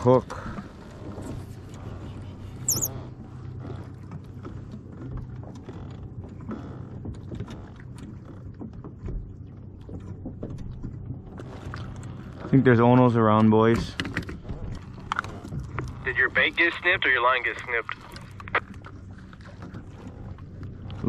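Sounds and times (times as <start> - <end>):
high squeak: 2.7 - 2.9.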